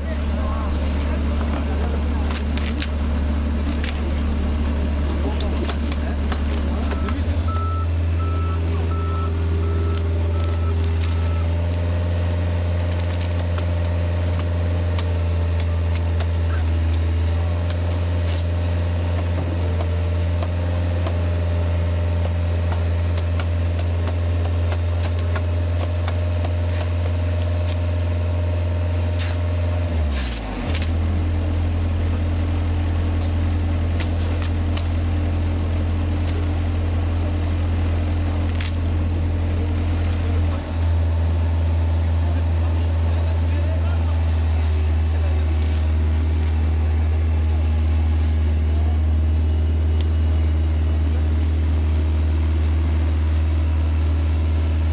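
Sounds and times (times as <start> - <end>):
loader engine running: 0.0 - 54.9
reversing beeper: 6.7 - 11.6.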